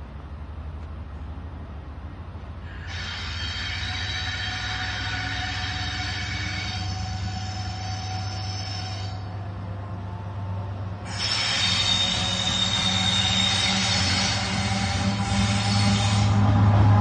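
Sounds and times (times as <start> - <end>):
diesel locomotive engine running: 0.0 - 17.0
train wheels squealing: 2.7 - 9.4, 11.0 - 16.6.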